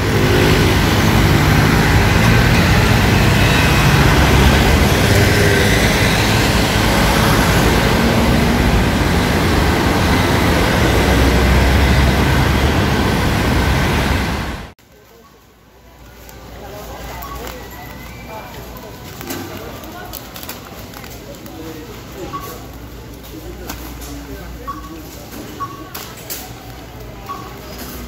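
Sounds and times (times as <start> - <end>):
cars driving slowly past: 0.0 - 14.7
road noise: 0.0 - 28.0.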